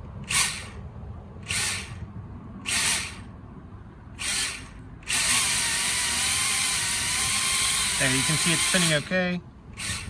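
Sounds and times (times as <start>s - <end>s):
drone propellers spinning up: 0.2s - 0.8s, 1.4s - 3.3s, 4.2s - 8.7s.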